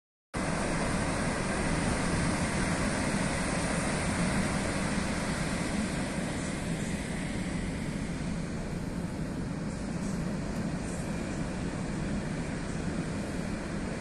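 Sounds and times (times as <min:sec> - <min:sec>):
surf breaking on beach: 0:00.4 - 0:08.7.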